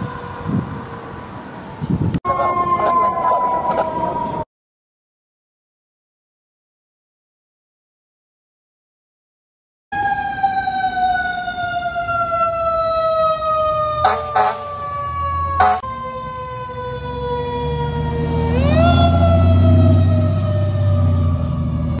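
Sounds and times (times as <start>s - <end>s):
truck engine rumbling: 13.4s - 22.0s
short horn blasts: 15.6s - 15.8s.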